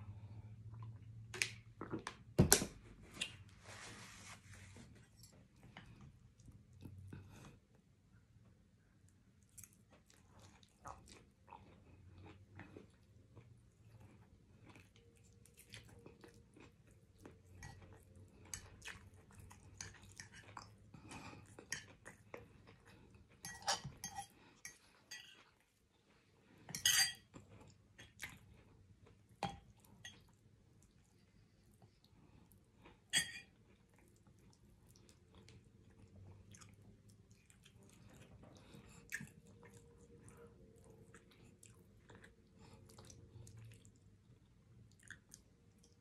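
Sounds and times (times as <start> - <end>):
close-up chewing: 9.4 - 26.3, 27.3 - 46.0
metal fork scraping a bowl: 23.4 - 24.3, 26.7 - 27.2.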